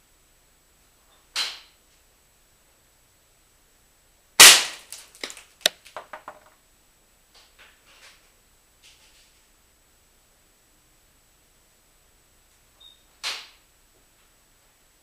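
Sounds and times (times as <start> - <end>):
air rifle shots cracking glass: 4.4 - 5.4.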